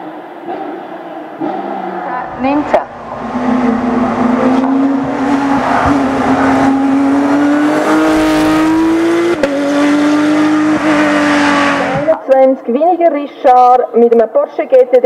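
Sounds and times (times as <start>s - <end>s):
racing engine accelerating: 0.3s - 12.2s.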